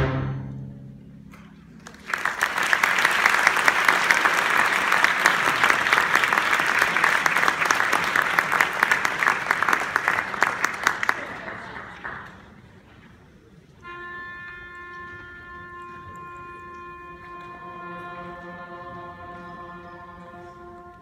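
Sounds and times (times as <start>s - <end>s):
audience applause: 1.7s - 13.0s.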